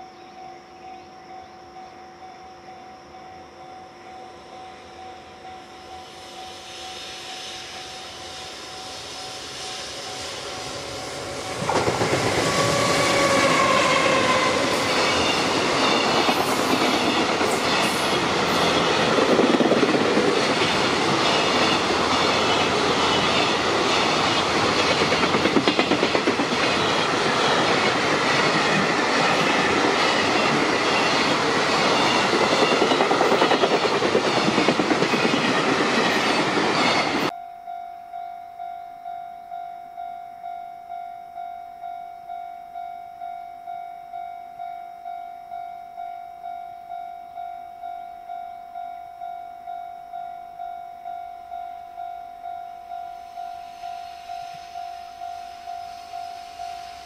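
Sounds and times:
locomotive whine: 0:00.6 - 0:44.1, 0:44.9 - 0:57.0
train rumble: 0:06.7 - 0:37.4.

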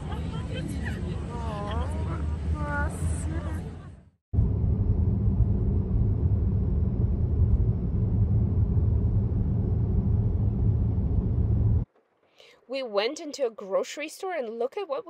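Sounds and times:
car engine and tyres rumbling: 0:00.0 - 0:11.9.

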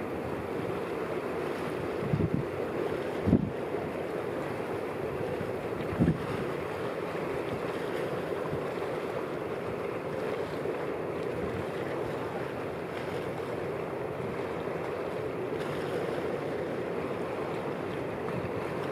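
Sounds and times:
choppy water: 0:00.0 - 0:18.9
wind: 0:00.0 - 0:18.9.

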